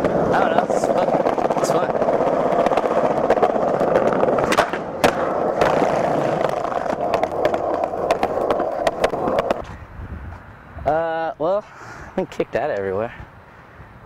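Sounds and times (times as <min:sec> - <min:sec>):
sharp skateboard clacks: 0:00.0 - 0:09.6
skateboard wheels rolling on paving: 0:00.0 - 0:10.8.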